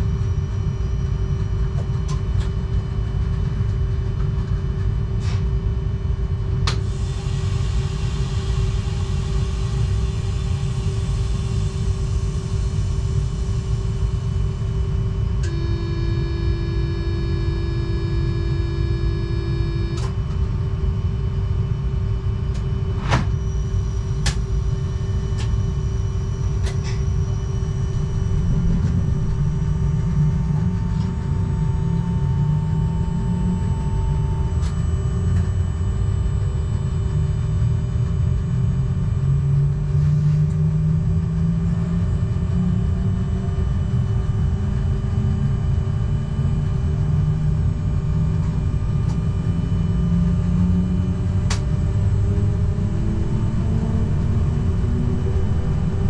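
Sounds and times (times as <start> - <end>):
constant tone: 7.8 - 56.0
low hum climbing in pitch: 8.8 - 56.0
held tone with overtones: 15.4 - 20.1.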